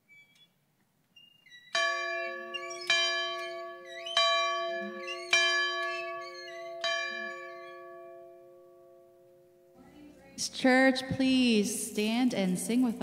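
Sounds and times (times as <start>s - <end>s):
large church bell ringing: 1.8s - 9.9s.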